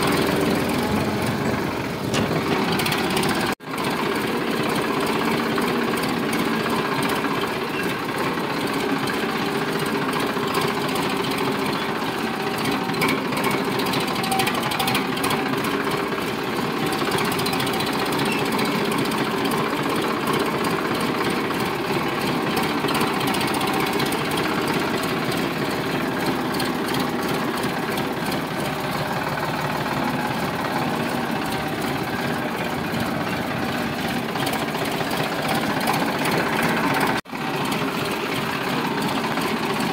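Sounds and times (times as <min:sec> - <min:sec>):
tractor diesel engine clattering: 0:00.0 - 0:39.9.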